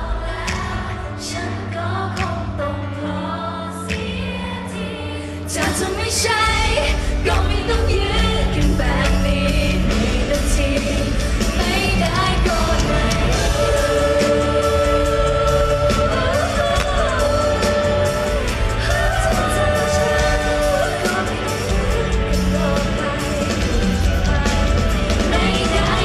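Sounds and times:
woman singing into a microphone: 0.0s - 26.0s
band music with steady beat: 5.6s - 26.0s.

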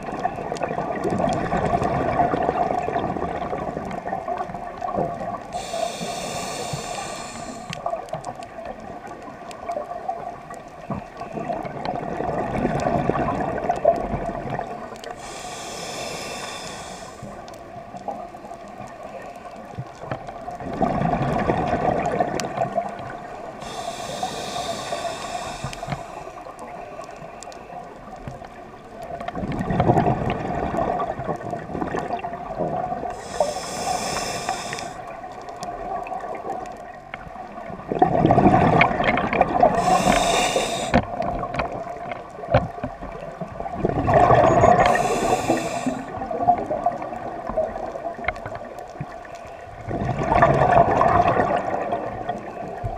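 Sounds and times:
exhaled bubbles gurgling: 0.0s - 52.9s
regulator inhalation hiss: 5.6s - 7.8s, 15.1s - 17.4s, 23.6s - 26.4s, 33.2s - 35.1s, 39.8s - 41.0s, 44.7s - 46.2s.

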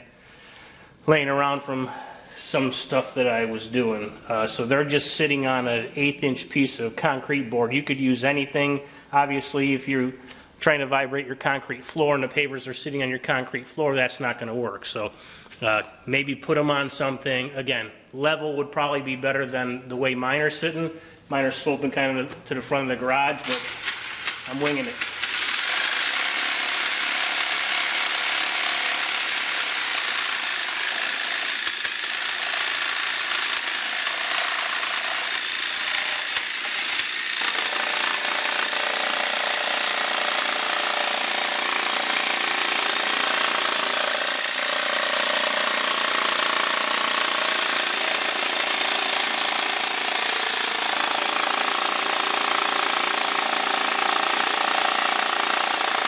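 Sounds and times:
power saw running: 23.2s - 56.0s.

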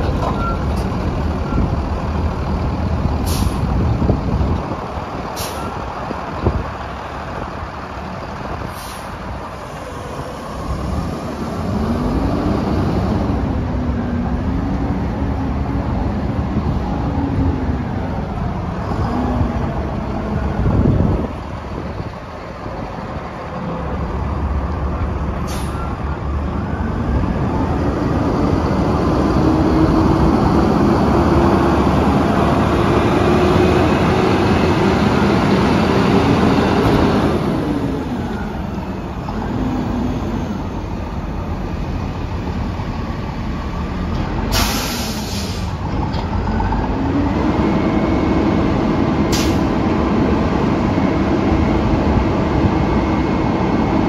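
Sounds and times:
diesel truck engine driving: 0.0s - 54.0s
air-brake hisses: 8.7s - 9.2s, 44.5s - 45.8s.

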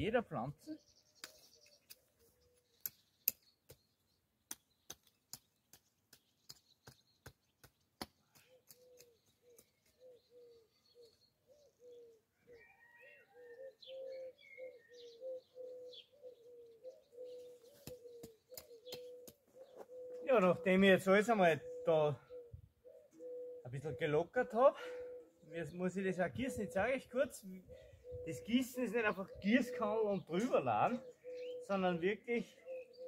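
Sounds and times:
small bird chirps: 0.6s - 20.8s, 26.3s - 33.0s
dove cooing: 8.2s - 33.0s.

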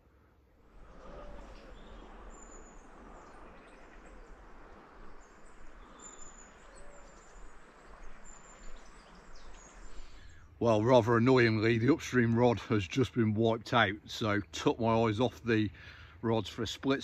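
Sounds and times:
river water rushing: 0.6s - 10.4s
high bird calls: 0.7s - 10.6s.

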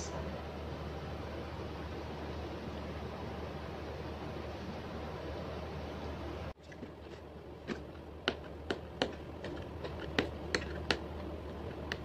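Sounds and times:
fingernails tapping packaging: 7.6s - 12.0s.

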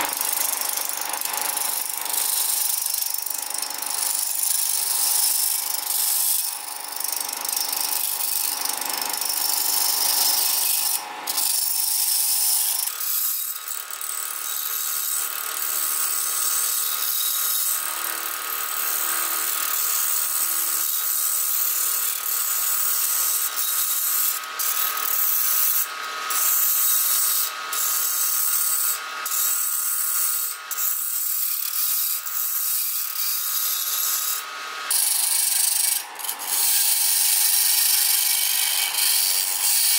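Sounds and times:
lathe tool cutting hiss and scrape: 0.0s - 39.9s
lathe motor whine: 25.5s - 39.9s.

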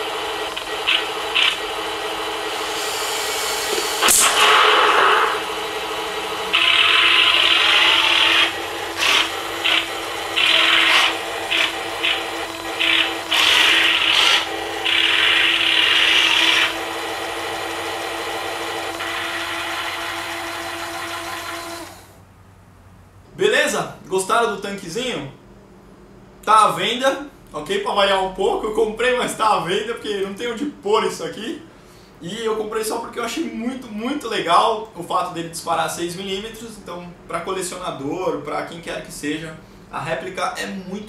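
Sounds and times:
electronic engine drone: 0.0s - 16.9s
sharp crack: 3.7s - 5.6s
sound-effect gunfire: 4.0s - 5.6s.

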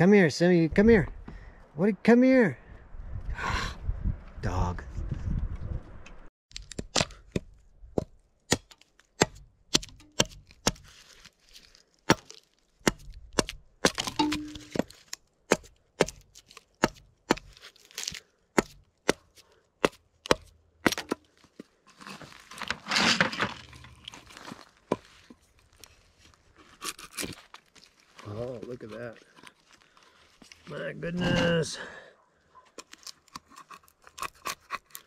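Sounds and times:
wood splitting and tearing: 6.5s - 30.7s, 32.7s - 35.0s
machete chopping wood: 6.6s - 10.9s, 12.0s - 21.3s.

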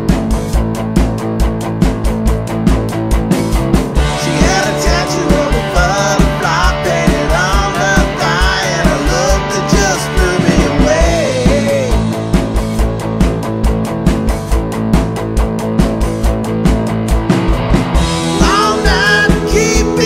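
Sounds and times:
rock band playing: 0.0s - 20.0s
lead vocal singing: 4.0s - 12.3s, 18.2s - 20.0s.

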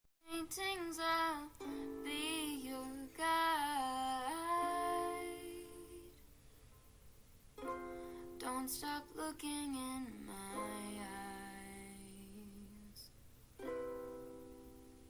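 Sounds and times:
woman singing wordless melody: 0.3s - 6.2s, 8.0s - 13.1s.

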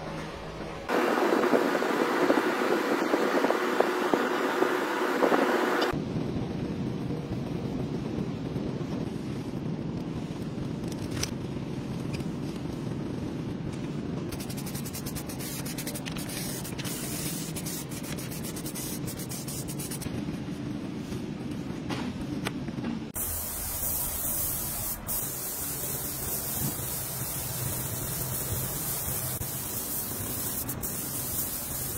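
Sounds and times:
aerosol spray can hissing: 14.4s - 20.0s, 23.2s - 31.9s.

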